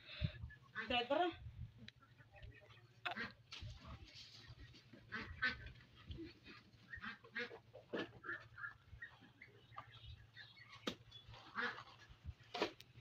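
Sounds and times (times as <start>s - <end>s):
ducks quacking: 0.5s - 1.4s, 2.0s - 3.5s, 4.4s - 12.3s.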